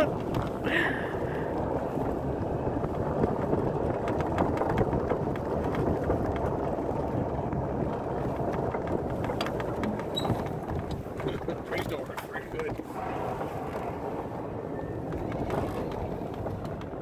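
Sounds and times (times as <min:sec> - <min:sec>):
golf cart driving on snow: 0:00.0 - 0:17.0
light clicks and rattles: 0:02.9 - 0:12.9.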